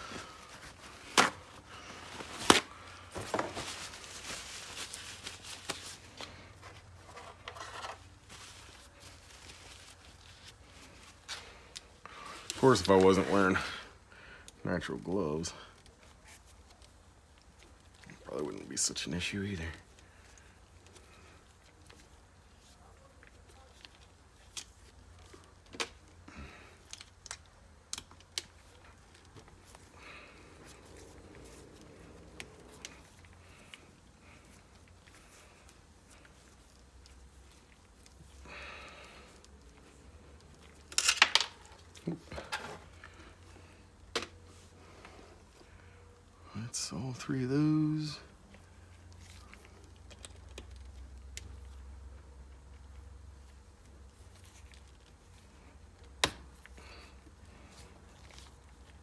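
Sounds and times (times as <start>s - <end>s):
tools clicking and rustling: 40.5s - 43.1s.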